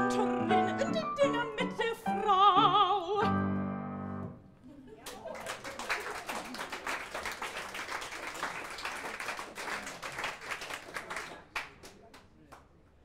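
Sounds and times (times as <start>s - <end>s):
audience applauding: 5.0s - 12.6s.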